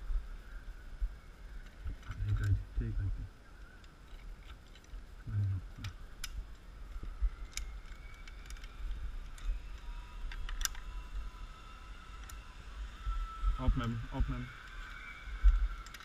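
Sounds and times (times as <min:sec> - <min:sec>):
sharp clicks: 0:03.8 - 0:06.6.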